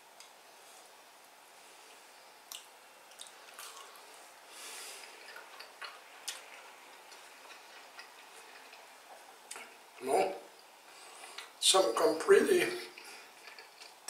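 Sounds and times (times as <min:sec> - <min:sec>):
mouth clicks of chewing: 0:02.5 - 0:04.0
soft breath rush: 0:04.0 - 0:05.4, 0:10.8 - 0:11.6.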